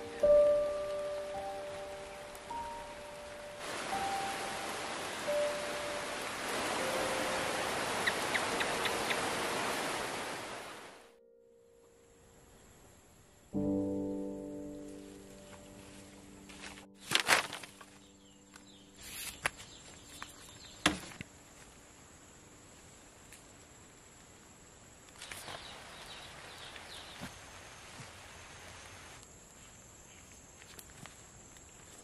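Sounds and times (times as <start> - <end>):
background music: 0.0 - 9.2, 13.4 - 18.8
faint high insect drone: 0.0 - 16.8, 17.4 - 32.0.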